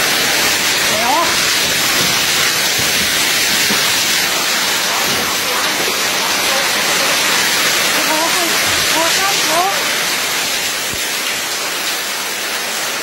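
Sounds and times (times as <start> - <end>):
heavy rain and hail: 0.0 - 13.0.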